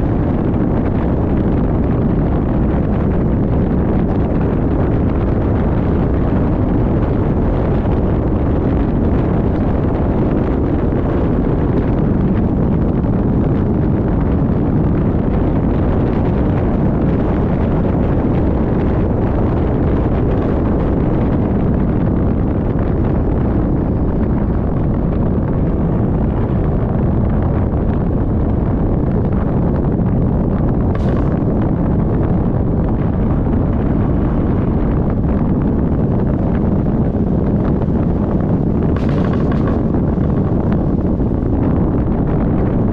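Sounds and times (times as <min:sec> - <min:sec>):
wind buffeting microphone: 0:00.0 - 0:42.9
moving vehicle rushing noise: 0:37.1 - 0:42.9.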